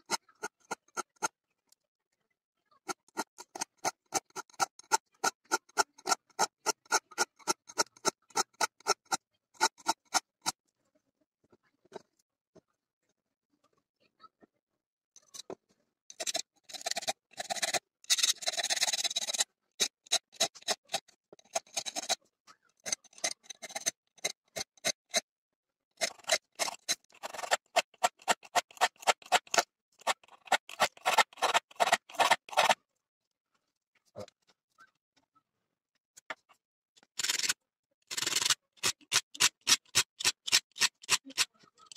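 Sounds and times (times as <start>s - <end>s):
hand file scraping metal: 0.0s - 1.3s, 2.9s - 10.6s, 16.2s - 22.2s, 22.8s - 25.2s, 26.0s - 32.8s, 37.2s - 41.5s.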